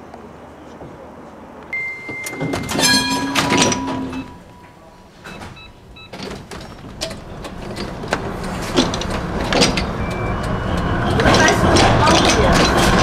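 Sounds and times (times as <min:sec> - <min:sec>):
tram running noise: 0:00.0 - 0:13.0.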